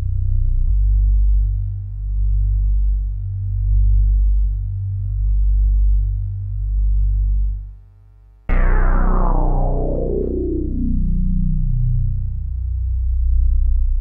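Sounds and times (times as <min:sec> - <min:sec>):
deep electronic drone: 0:08.5 - 0:14.0.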